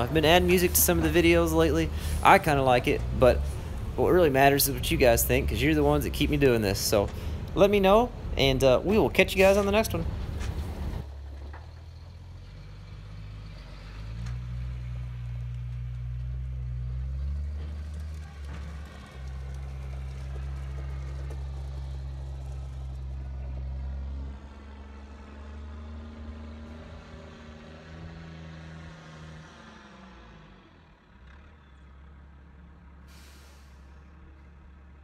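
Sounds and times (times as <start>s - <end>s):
diesel truck engine pulling away: 0.0s - 35.0s
brief hiss: 33.1s - 34.0s.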